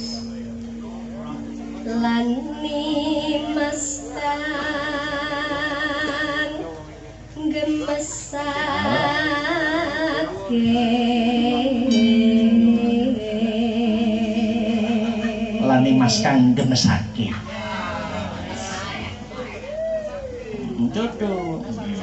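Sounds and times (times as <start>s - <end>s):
woman singing into a microphone: 1.8s - 6.7s, 7.4s - 15.7s.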